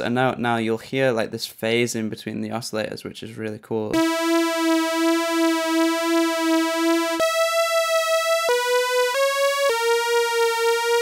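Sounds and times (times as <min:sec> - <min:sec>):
synth lead melody: 0:04.0 - 0:11.0.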